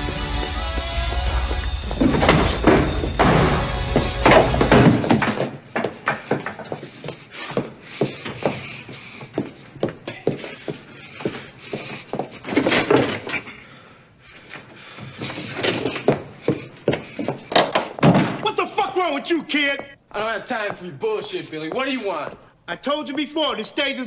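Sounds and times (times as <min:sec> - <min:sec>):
irregular knocks and clatters: 0:01.6 - 0:13.5.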